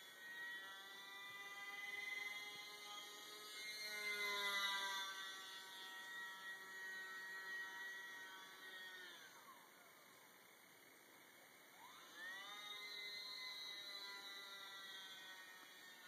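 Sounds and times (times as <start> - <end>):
rc plane motor whining: 0.0 - 16.0.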